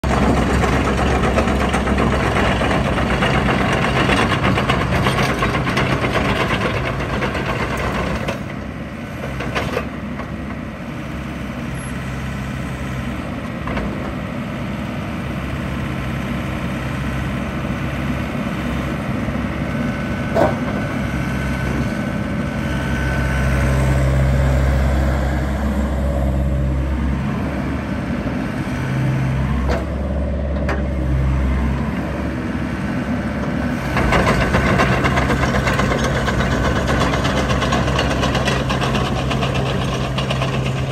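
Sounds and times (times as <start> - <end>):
rattling clatter of tracks: 0.0 - 8.6, 33.8 - 40.9
excavator diesel engine running: 0.0 - 40.9.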